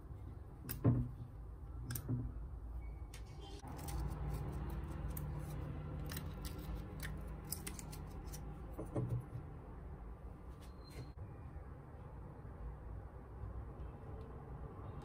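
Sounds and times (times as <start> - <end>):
metallic clicks and scrapes: 3.1 - 8.5.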